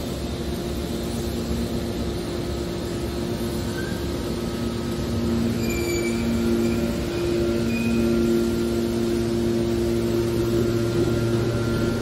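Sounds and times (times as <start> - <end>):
hydraulic unit low hum: 0.0 - 12.0
high metallic squeals: 3.7 - 4.1, 5.3 - 12.0.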